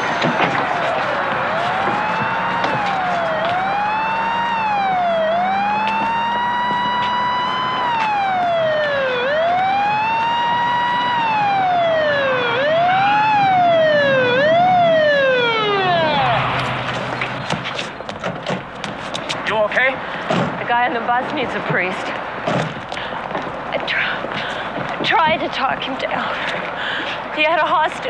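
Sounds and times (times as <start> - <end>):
police siren wailing: 0.0 - 18.0.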